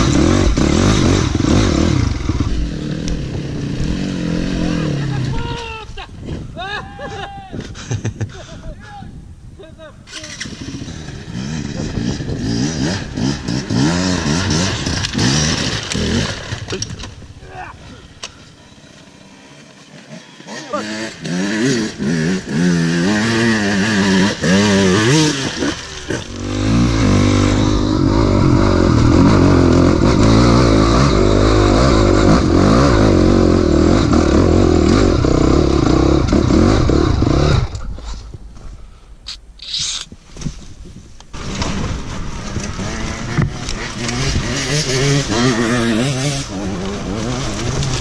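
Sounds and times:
dirt bike running under throttle: 0.0 - 5.2, 10.3 - 17.0, 18.6 - 37.9, 41.3 - 48.0
dirt bike engine revving: 0.0 - 5.4, 10.1 - 17.1, 18.5 - 37.9, 41.3 - 48.0.

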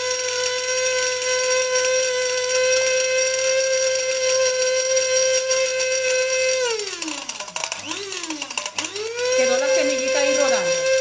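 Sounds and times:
electric spice grinder whining: 0.0 - 11.0.

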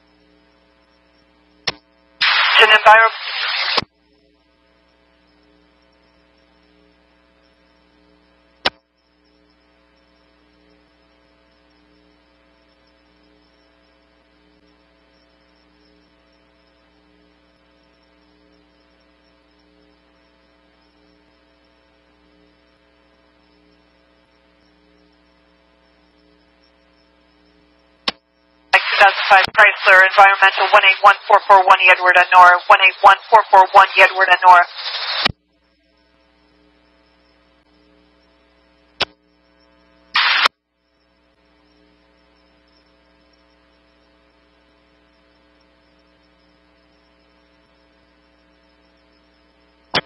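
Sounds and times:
faint electrical mains hum: 0.0 - 50.0
sharp click: 1.6 - 2.4, 8.6 - 8.8, 28.0 - 28.2, 39.0 - 39.2.

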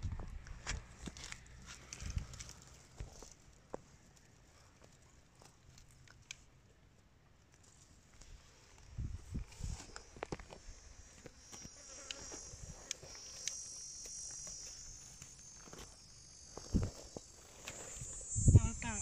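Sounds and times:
insect trilling: 9.9 - 19.0.

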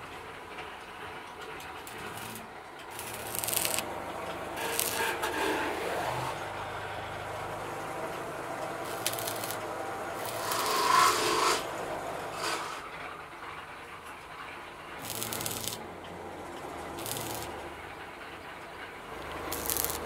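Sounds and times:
welding arc crackling: 1.7 - 12.9, 14.9 - 16.0, 16.7 - 17.9, 19.1 - 20.0.

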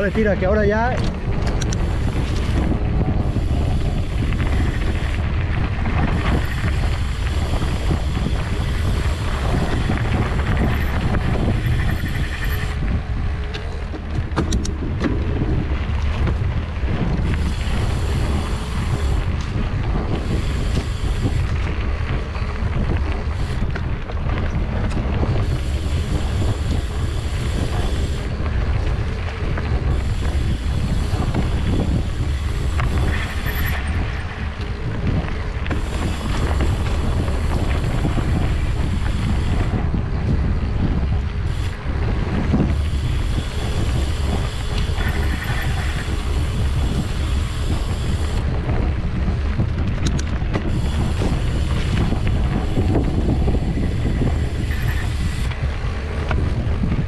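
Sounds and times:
sharp clicks or rattles: 0.0 - 2.8, 49.7 - 52.0
wind buffeting microphone: 0.0 - 57.0.

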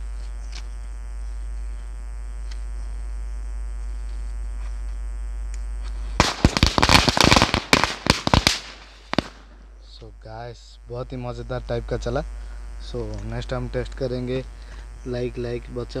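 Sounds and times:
steady background hum: 0.0 - 16.0
firecrackers cracking rapidly: 6.1 - 9.8.

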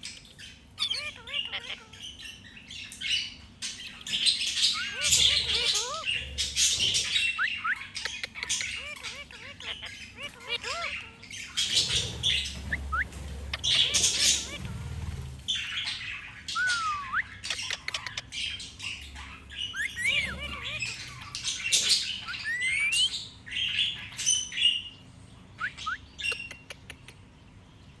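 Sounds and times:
parakeet squawks: 0.0 - 24.9
parakeet whistled chirps: 7.1 - 8.0, 15.6 - 17.5, 22.1 - 24.6, 25.6 - 26.4.

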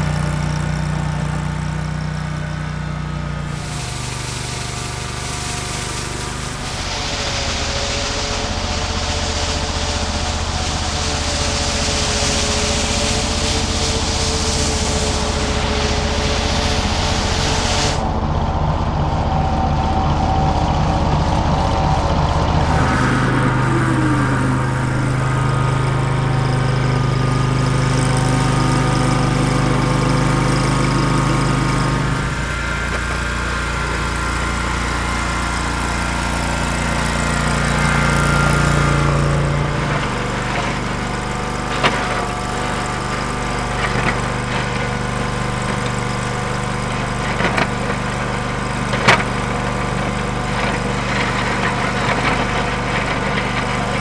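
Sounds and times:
snow vehicle engine running: 0.0 - 54.0
plow blade knocking: 22.6 - 54.0.

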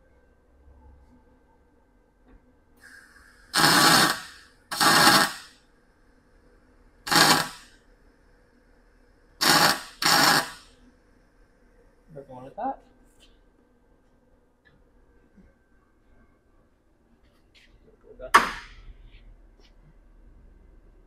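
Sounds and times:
welder short bursts: 2.8 - 5.6, 7.1 - 7.7, 9.4 - 10.7.

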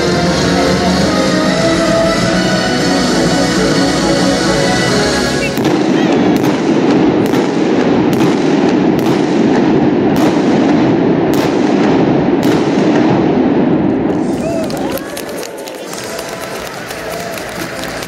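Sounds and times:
stadium music: 0.0 - 10.1, 13.6 - 18.0
continuous loud roar: 0.0 - 18.0
fireworks bangs: 5.4 - 18.0.

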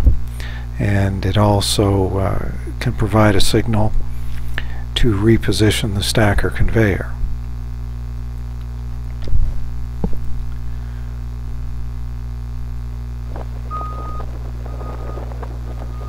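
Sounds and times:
heavy machinery humming: 10.7 - 16.0
high warning beeper: 13.3 - 16.0.

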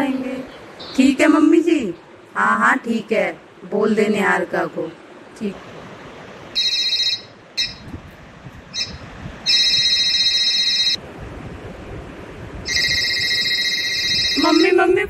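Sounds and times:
mobile phone ringtone: 6.6 - 7.8, 8.8 - 11.0, 12.7 - 14.7.

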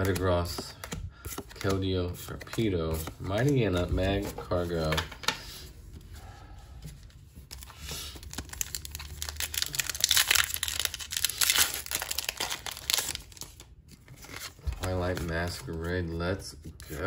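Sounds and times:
wrapper crinkling and tearing: 7.5 - 15.6.

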